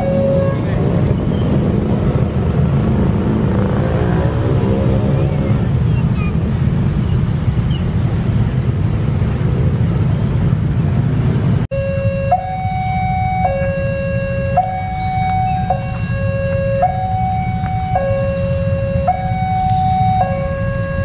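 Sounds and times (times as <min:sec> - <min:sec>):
level crossing warning alarm: 0:00.0 - 0:00.7, 0:11.7 - 0:21.0.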